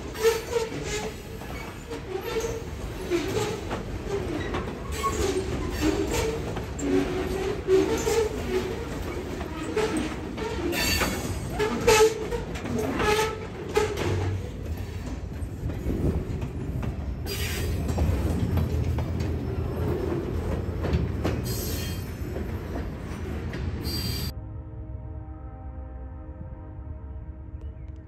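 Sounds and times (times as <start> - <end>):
train wheels clanking and squealing: 0.0 - 24.3
train low rumble: 0.0 - 28.0.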